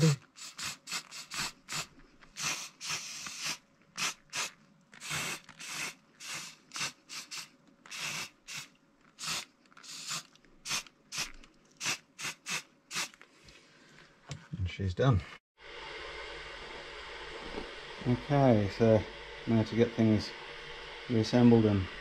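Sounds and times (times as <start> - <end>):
spray paint can hissing: 0.0 - 13.2.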